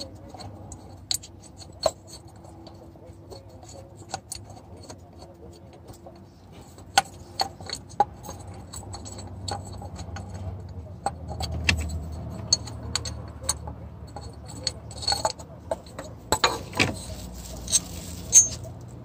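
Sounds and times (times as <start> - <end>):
metallic tool clicks and clinks: 6.9 - 19.0.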